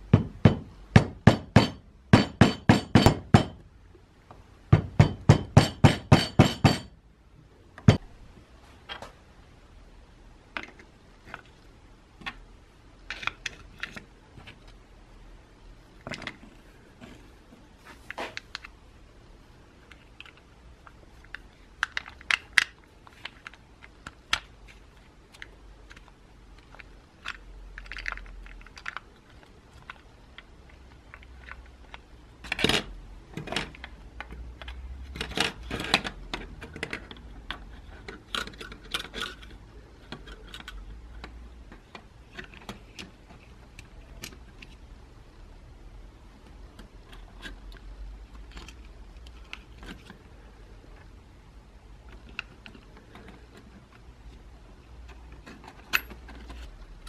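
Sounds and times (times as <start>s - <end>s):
metal parts clicking and clattering: 25.3s - 29.1s, 55.0s - 56.8s.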